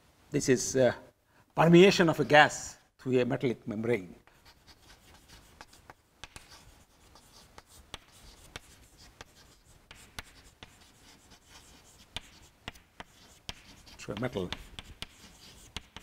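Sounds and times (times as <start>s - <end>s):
chalk scraping on chalkboard: 4.2s - 16.0s
chalk tapping on chalkboard: 4.3s - 16.0s.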